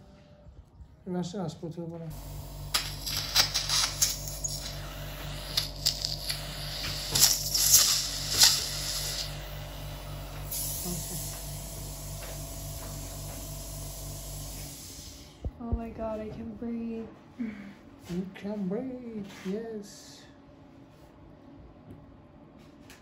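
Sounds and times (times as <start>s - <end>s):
suction machine hum: 2.1s - 15.7s
sharp crackles and clicks: 2.3s - 9.3s.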